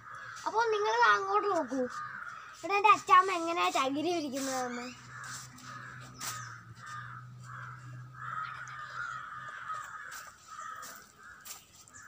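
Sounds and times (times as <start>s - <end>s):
crows cawing: 0.0s - 12.0s.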